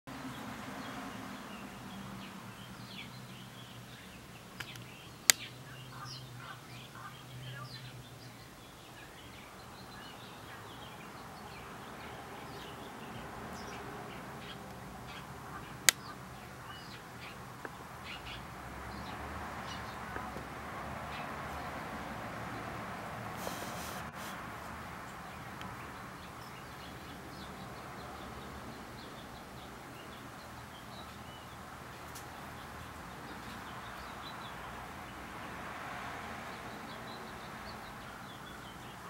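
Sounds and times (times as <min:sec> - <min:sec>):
small songbirds chirping: 0:00.1 - 0:39.0
sharp clicks: 0:04.6 - 0:05.5.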